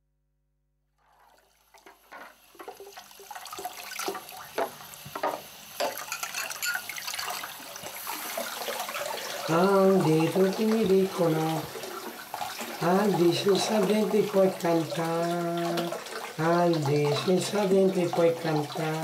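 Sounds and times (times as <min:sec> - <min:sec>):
tap water splashing into sink: 0:01.2 - 0:19.0
glass jar clinking: 0:05.8 - 0:07.3.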